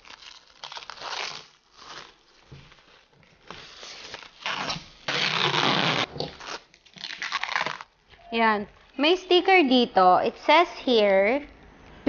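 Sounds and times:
plastic wrap crinkling: 0.0 - 8.0
plastic wrap ripping: 0.0 - 8.0.

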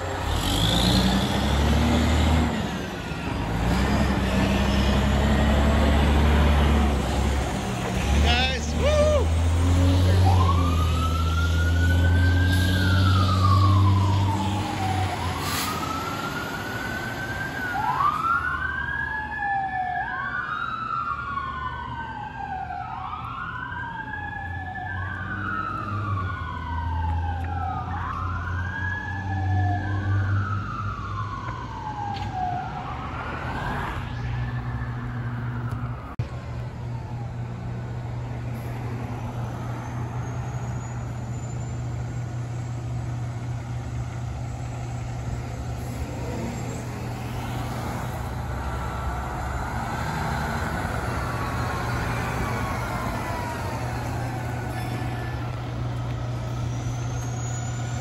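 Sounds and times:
diesel engine rumbling: 0.0 - 19.1, 34.0 - 58.0
siren wailing: 8.3 - 36.2, 46.1 - 58.0.

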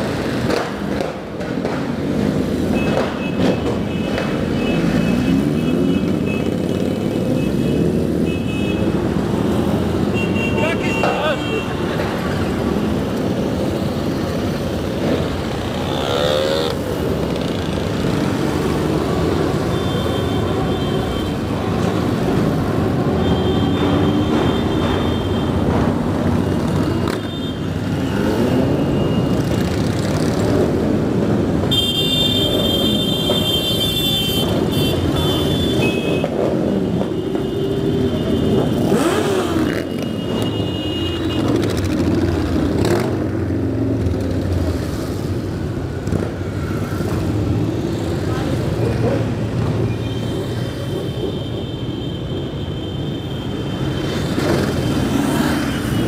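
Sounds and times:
motorcycles riding past: 11.8 - 23.2, 25.9 - 31.6, 34.5 - 51.2, 53.8 - 56.0.

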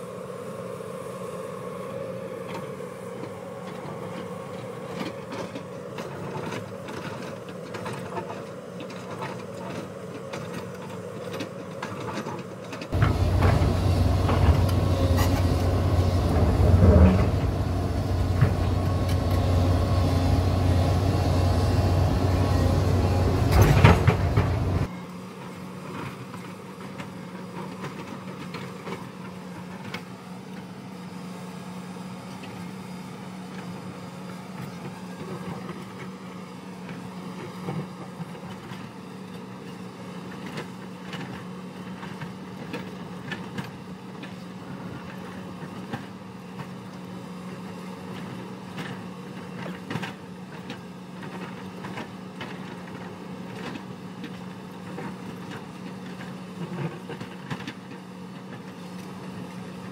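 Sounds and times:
excavator diesel engine humming: 0.0 - 25.1.

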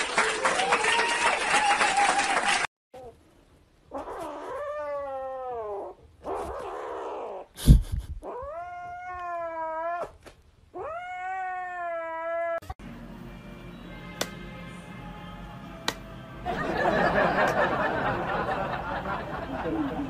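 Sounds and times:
kitten yowling: 3.9 - 7.5, 8.2 - 10.2, 10.8 - 12.7.

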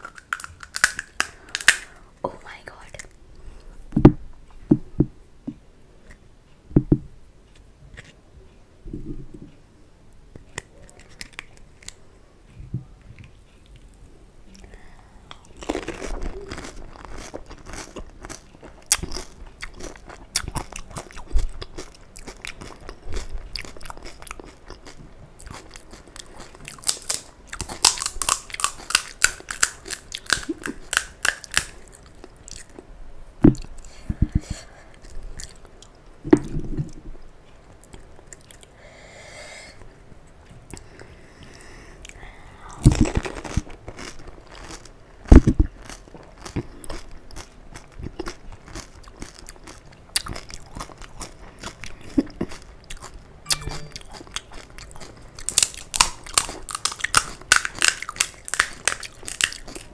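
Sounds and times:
crisp shells crunching: 0.0 - 1.9, 15.6 - 20.2, 25.6 - 32.2, 42.9 - 44.9, 54.1 - 59.9
biting and chewing: 0.0 - 2.0, 15.3 - 32.9, 42.8 - 59.9.

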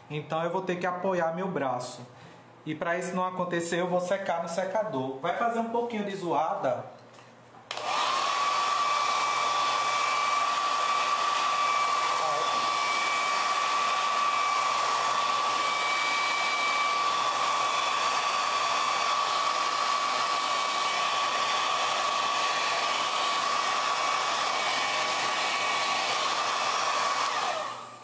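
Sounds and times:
hair dryer blowing: 7.7 - 28.0.

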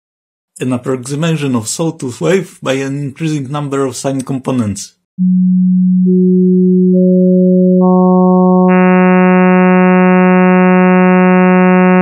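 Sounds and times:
synthesized buzzy tone: 5.2 - 12.0.

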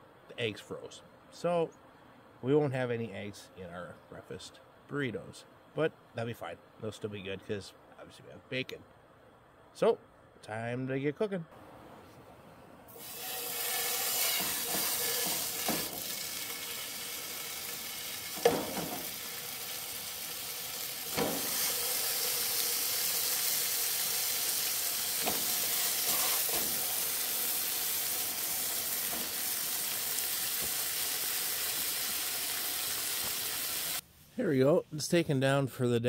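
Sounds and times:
bacon sizzling in a frying pan: 13.0 - 34.0
short knocks in pan: 18.4 - 19.1, 21.1 - 21.6.

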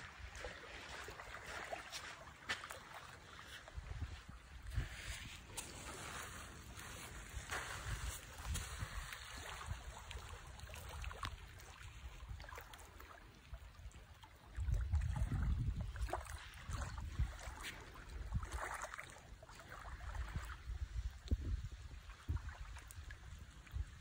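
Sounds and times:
water lapping at shore: 0.0 - 24.0
wind rumbling on microphone: 3.5 - 12.8, 14.5 - 24.0.

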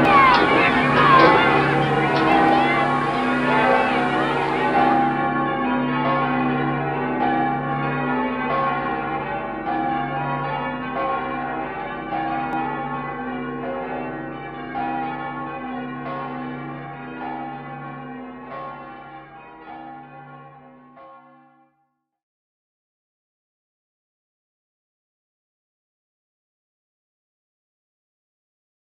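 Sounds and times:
bells ringing: 0.0 - 13.9.

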